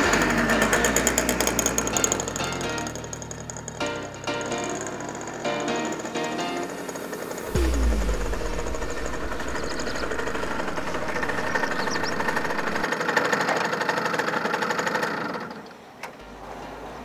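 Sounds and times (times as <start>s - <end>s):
moped two-stroke engine running: 0.0s - 6.1s.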